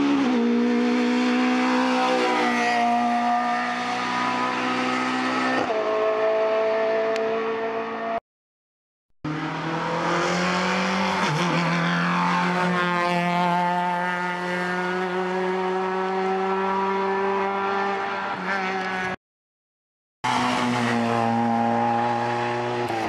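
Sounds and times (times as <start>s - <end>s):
race car engine accelerating: 9.3s - 19.2s.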